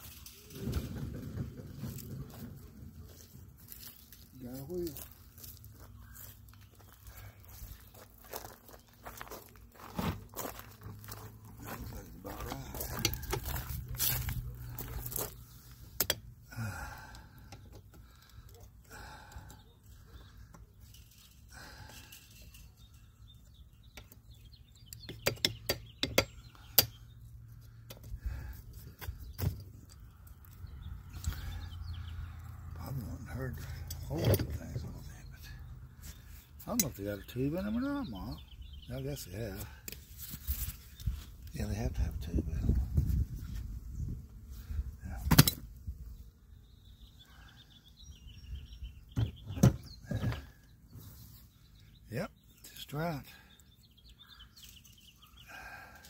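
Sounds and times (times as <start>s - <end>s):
bird singing faintly: 46.0s - 56.0s.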